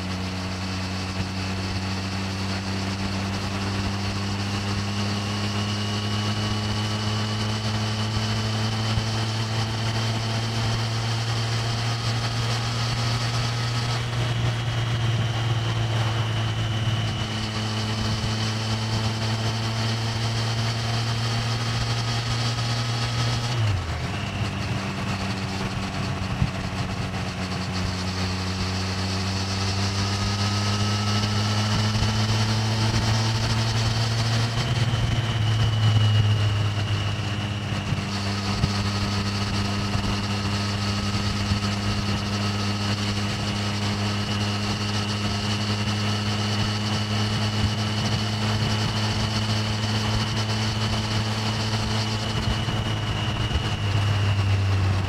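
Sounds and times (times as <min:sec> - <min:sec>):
motorcycle engine cruising: 0:00.0 - 0:55.0
wind noise on microphone: 0:23.1 - 0:55.0.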